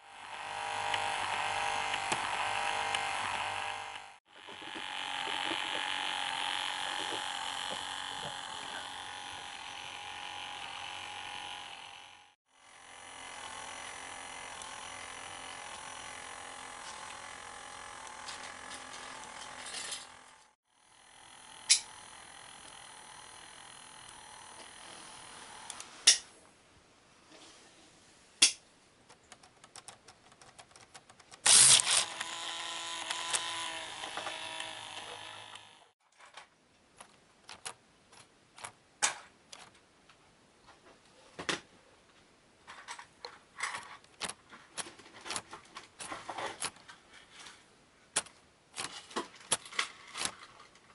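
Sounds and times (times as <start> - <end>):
steady electric hum: 0.0 - 26.3
plastic mechanism clicking and rattling: 29.1 - 39.8, 42.7 - 47.6, 48.2 - 50.9.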